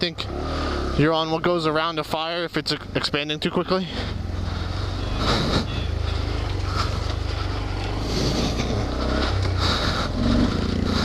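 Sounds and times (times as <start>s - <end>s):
motorcycle engine running: 0.0s - 11.0s
brush noise: 4.0s - 11.0s.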